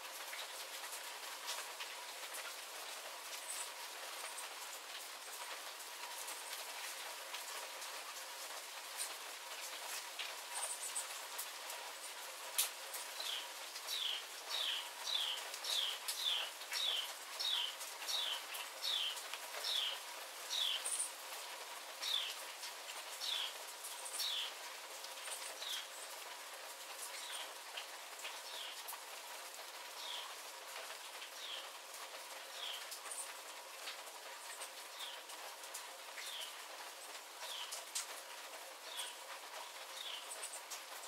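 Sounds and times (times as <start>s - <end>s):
steady rain: 0.0s - 41.0s.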